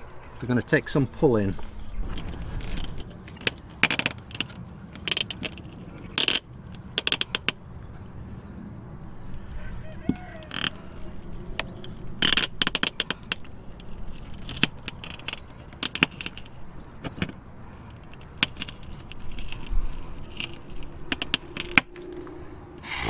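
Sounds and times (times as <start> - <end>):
metal scraping: 9.2 - 23.0.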